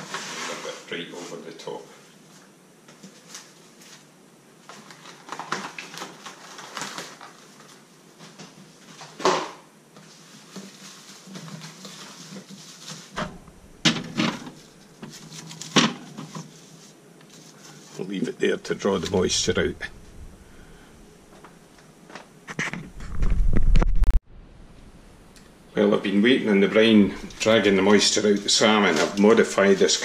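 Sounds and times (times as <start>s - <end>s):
cling film and plastic bag rustling: 0.0s - 20.2s, 26.8s - 30.0s
fridge humming: 13.2s - 16.1s.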